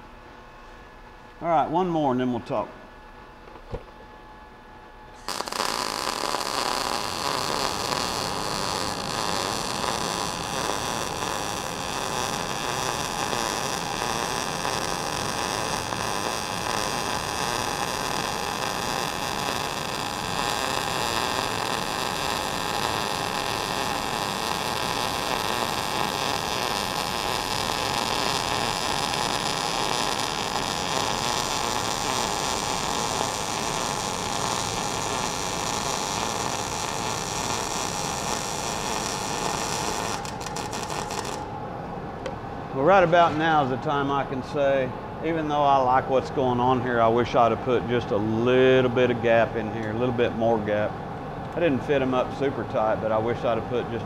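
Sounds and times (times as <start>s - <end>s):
welding arc sizzling: 5.2s - 41.6s.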